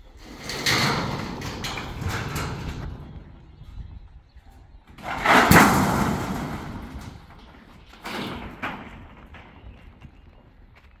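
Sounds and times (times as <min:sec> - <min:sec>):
heavy scraping: 0:04.9 - 0:10.0.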